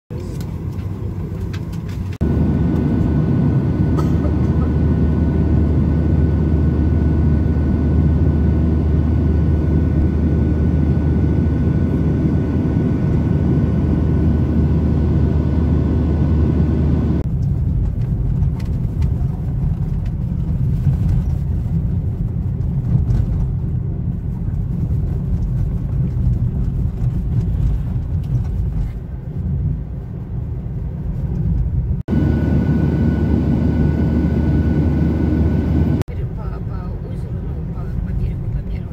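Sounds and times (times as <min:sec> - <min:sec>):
road and tyre noise in car: 0:00.1 - 0:06.5, 0:12.8 - 0:34.0, 0:34.7 - 0:38.9
airliner cabin hum: 0:00.1 - 0:38.9.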